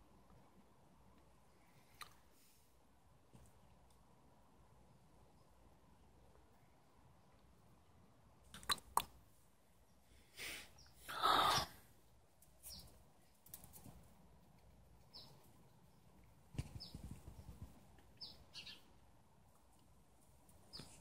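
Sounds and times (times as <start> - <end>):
small bird chirping: 12.6 - 13.0, 15.0 - 16.0, 16.6 - 19.0, 20.6 - 21.0.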